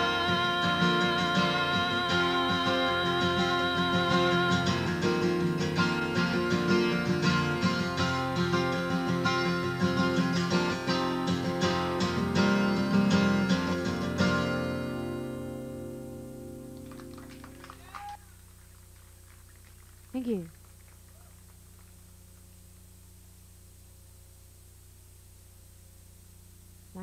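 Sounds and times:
acoustic guitar strumming: 0:00.0 - 0:17.6.

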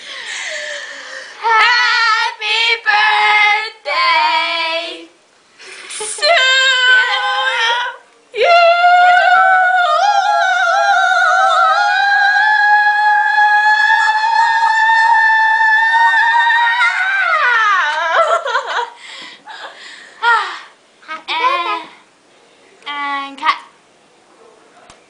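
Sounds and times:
girl singing high: 0:01.4 - 0:05.1, 0:06.1 - 0:18.2, 0:21.2 - 0:22.0.

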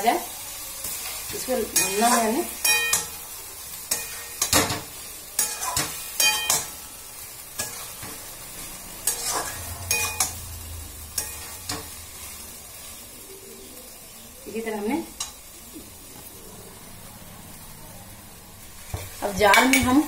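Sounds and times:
oil sizzling: 0:00.0 - 0:20.0
metal spatula scraping a pan: 0:00.8 - 0:13.7.

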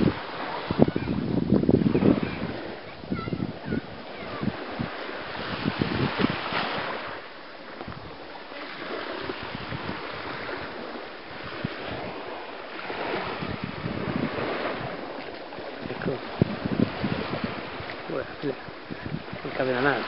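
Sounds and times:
surf washing on beach: 0:00.0 - 0:20.0
wind buffeting microphone: 0:00.0 - 0:20.0.

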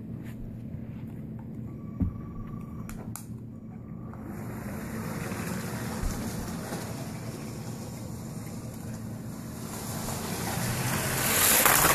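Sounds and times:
toy train whirring on track: 0:04.2 - 0:11.9.

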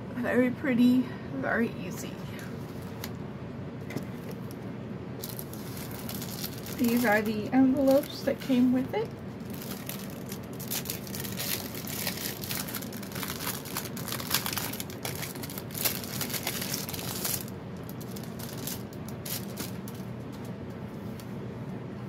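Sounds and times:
plastic packaging crinkling: 0:05.2 - 0:20.6.

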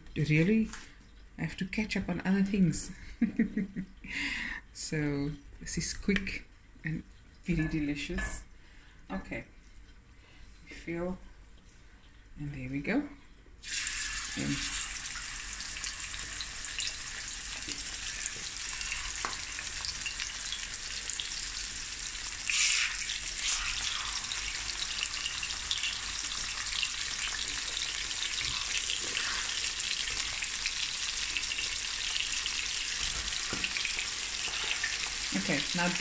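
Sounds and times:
fish frying in hot oil: 0:13.6 - 0:36.0.

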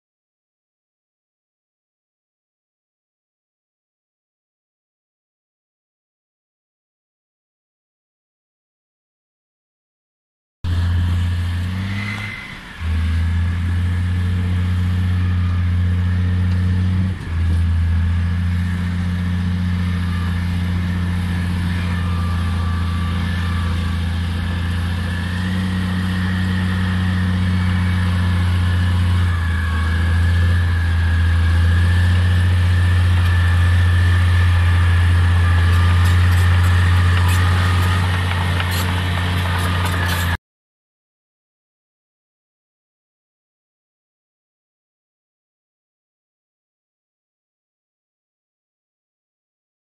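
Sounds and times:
bulldozer diesel engine under load: 0:10.7 - 0:40.4.

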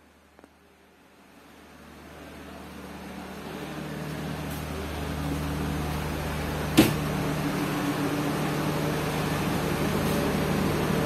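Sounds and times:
train carriage mechanical hum: 0:00.0 - 0:11.0.

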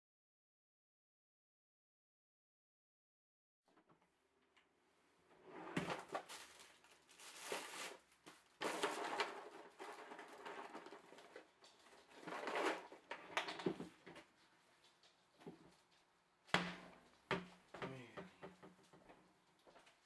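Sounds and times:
close rustling and crunching: 0:06.0 - 0:13.0.

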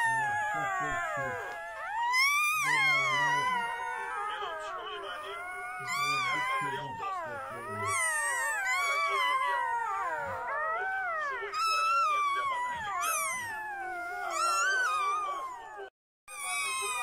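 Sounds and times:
puppies whining: 0:00.0 - 0:17.0.

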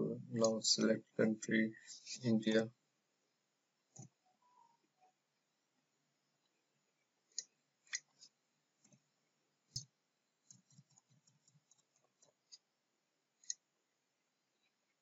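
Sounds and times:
computer mouse clicks: 0:13.4 - 0:13.6.

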